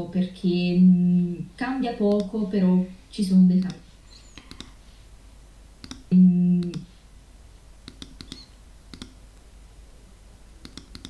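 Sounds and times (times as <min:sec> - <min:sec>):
computer mouse clicks: 0:02.1 - 0:02.4, 0:03.6 - 0:04.8, 0:05.8 - 0:06.9, 0:07.8 - 0:09.2, 0:10.6 - 0:11.0.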